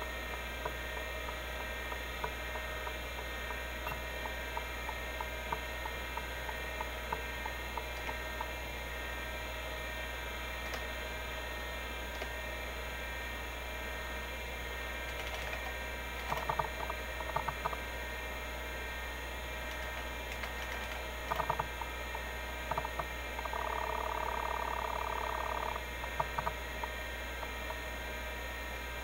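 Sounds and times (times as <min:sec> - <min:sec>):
hard drive seek chirping: 0:00.0 - 0:29.0
hard drive spinning whine: 0:00.0 - 0:29.0.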